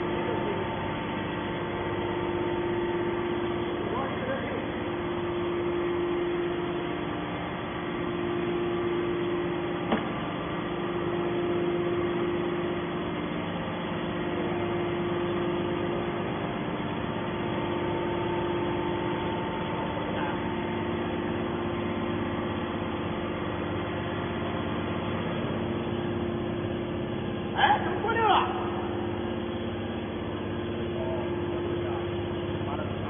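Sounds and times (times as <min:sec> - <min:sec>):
hydraulic power unit humming: 0:00.0 - 0:33.0.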